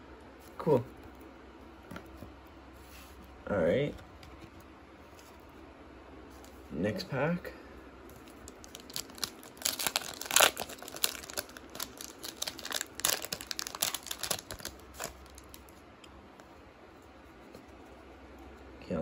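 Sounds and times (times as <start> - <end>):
wrapper crinkling and tearing: 8.2 - 15.7.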